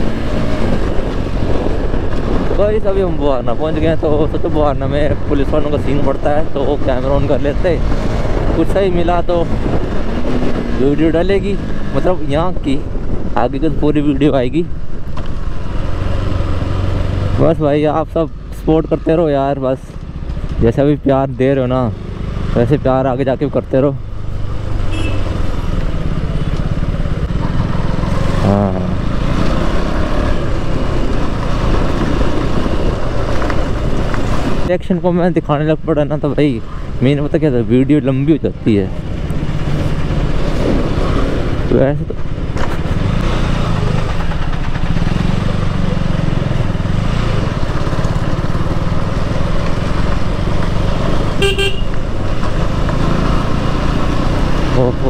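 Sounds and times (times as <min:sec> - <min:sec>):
wind rush: 0:07.5 - 0:13.9
vehicle horn toot: 0:24.9 - 0:25.3, 0:51.4 - 0:52.0
motorcycle engine running: 0:38.9 - 0:55.0.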